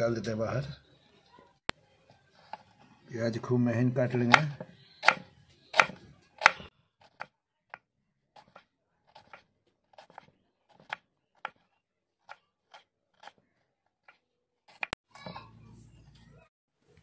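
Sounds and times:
knife tapping wooden board: 0:04.1 - 0:07.3.

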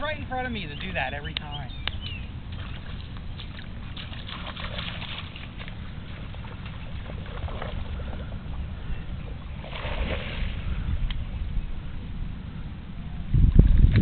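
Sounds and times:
wind rumble on microphone: 0:00.0 - 0:14.0
dog splashing in water: 0:02.6 - 0:07.9.

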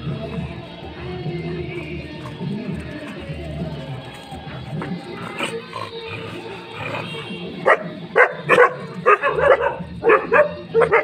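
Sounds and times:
background music: 0:00.0 - 0:11.0
dog barking: 0:06.4 - 0:11.0.

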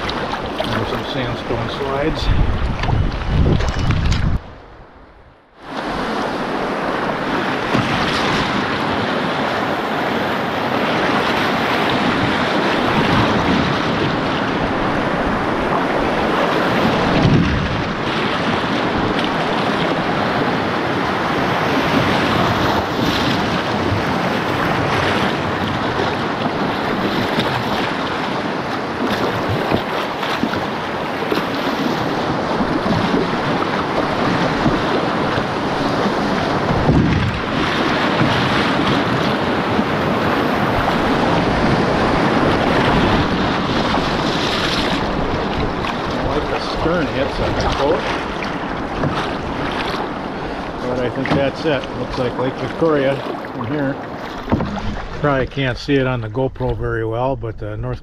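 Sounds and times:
whitewater rushing: 0:00.0 - 0:04.0, 0:05.8 - 0:56.2
wind buffeting microphone: 0:00.0 - 0:58.0
canoe knocking on rocks: 0:54.2 - 0:55.2.

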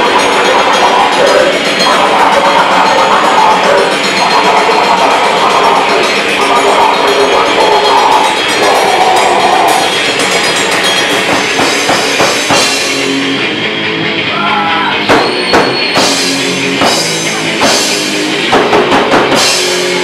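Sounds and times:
live punk band playing: 0:00.0 - 0:20.0
sharp drum strikes: 0:08.2 - 0:13.4, 0:14.8 - 0:20.0.

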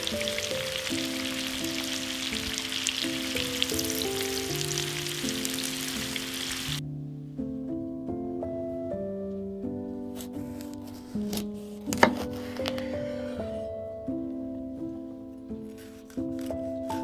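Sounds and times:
onions sizzling in a frying pan: 0:00.0 - 0:06.8
background music: 0:00.0 - 0:17.0.

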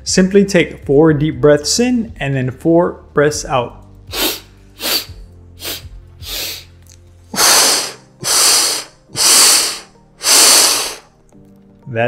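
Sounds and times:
man breathing in sharply: 0:07.4 - 0:11.1
man exhaling through pursed lips: 0:07.4 - 0:11.1.

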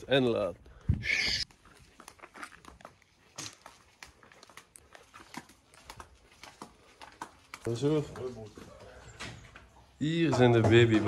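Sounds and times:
faint crinkling and rustling: 0:01.4 - 0:10.0.

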